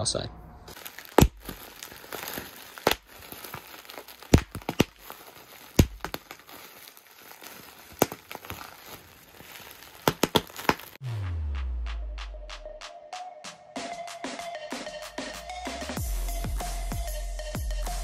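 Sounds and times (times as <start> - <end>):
bubble wrap crinkling: 0.7 - 11.0
bubble wrap snapping: 0.7 - 11.0.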